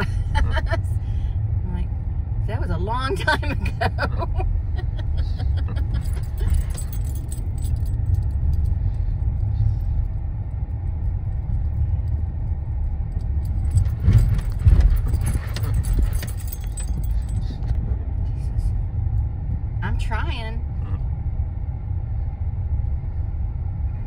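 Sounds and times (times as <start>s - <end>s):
car road noise rumble: 0.0s - 24.0s
jangling and rattling: 4.2s - 18.6s.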